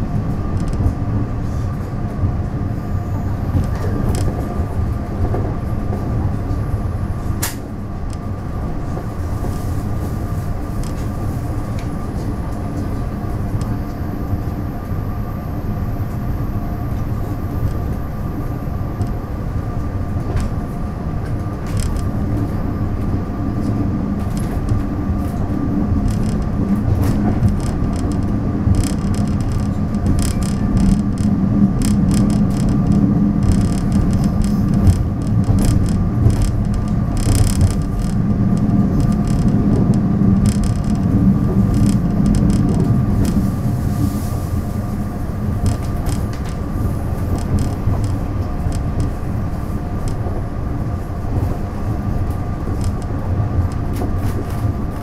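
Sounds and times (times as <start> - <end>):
constant hum: 0.0 - 55.0
train wheels rumbling on rail: 0.0 - 55.0
sharp click: 7.4 - 7.7
clicks and rattles: 23.6 - 43.4.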